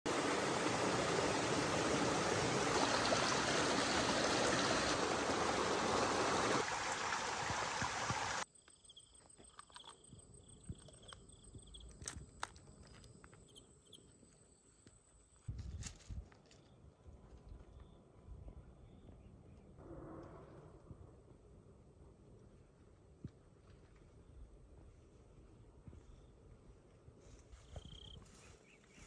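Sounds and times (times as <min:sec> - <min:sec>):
stream water rushing: 0:00.1 - 0:08.4
faint insect hum: 0:08.2 - 0:19.2, 0:23.8 - 0:28.9.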